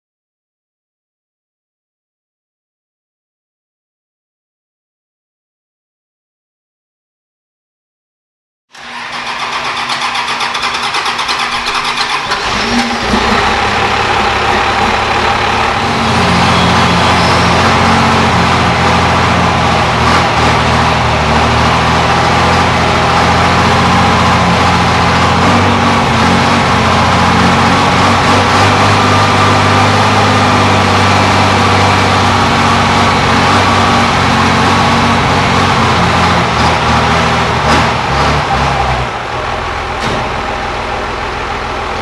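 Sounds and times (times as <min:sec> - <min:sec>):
diesel engine idling loudly: 0:08.8 - 0:42.0.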